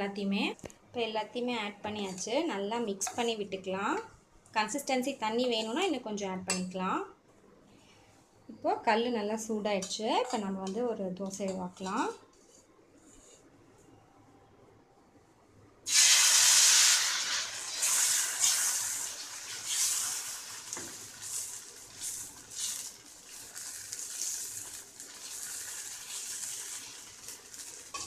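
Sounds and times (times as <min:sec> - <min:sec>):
batter sizzling on griddle: 0:15.9 - 0:28.0.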